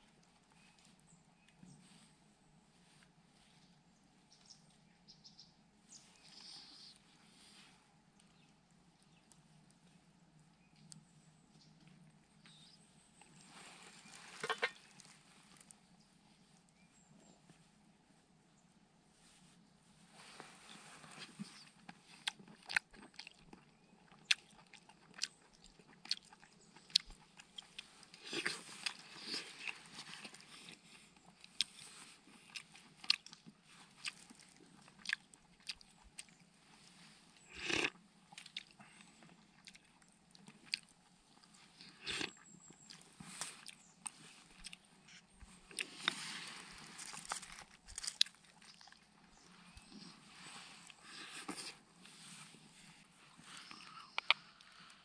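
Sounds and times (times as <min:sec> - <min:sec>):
person chewing with mouth smacks: 0:21.2 - 0:46.2, 0:53.5 - 0:54.7.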